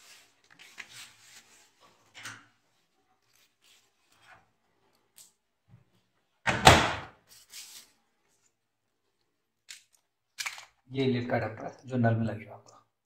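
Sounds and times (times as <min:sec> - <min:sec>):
washing machine door thud: 0:06.5 - 0:07.1.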